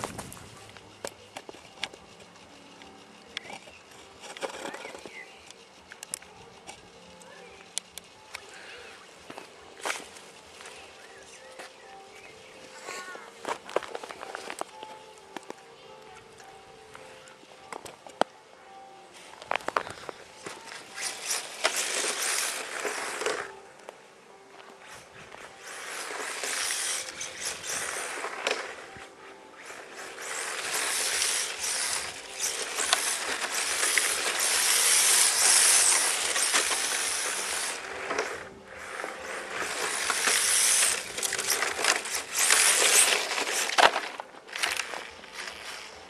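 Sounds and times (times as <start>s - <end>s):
drivetrain whirring with ticking: 0.0s - 18.4s.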